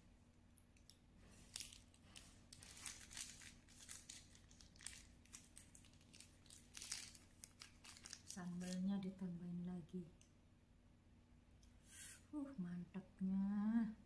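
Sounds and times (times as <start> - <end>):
faint crinkling and rustling: 0.7 - 9.1.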